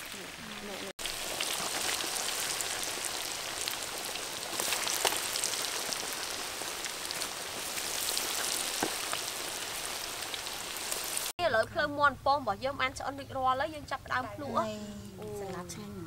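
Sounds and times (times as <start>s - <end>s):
chicken deep-frying in oil: 0.0s - 11.4s.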